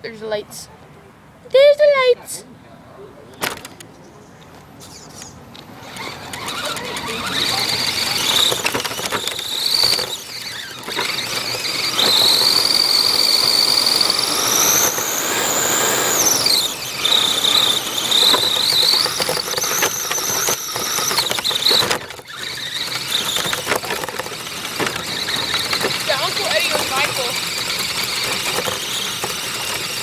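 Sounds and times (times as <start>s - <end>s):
toy car motor whining: 4.8s - 30.0s.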